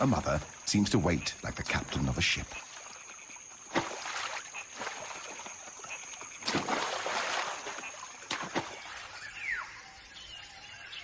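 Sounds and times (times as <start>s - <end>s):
water splashing: 1.7s - 9.2s.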